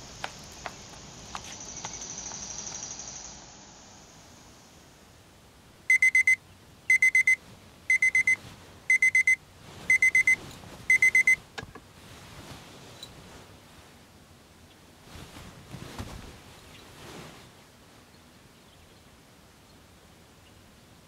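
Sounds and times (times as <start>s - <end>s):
electronic alarm beeping: 5.9s - 11.4s.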